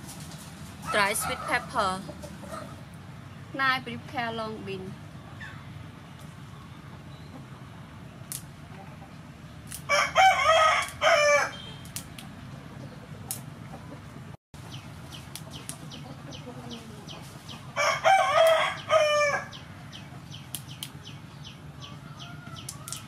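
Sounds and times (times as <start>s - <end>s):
beans snapped by hand: 8.3s - 8.5s, 9.6s - 9.9s, 10.8s - 11.0s, 11.8s - 12.4s, 13.3s - 13.5s, 18.4s - 18.6s, 20.5s - 21.0s, 22.6s - 23.0s
rooster crowing: 9.9s - 11.7s, 17.8s - 19.6s, 21.8s - 23.0s.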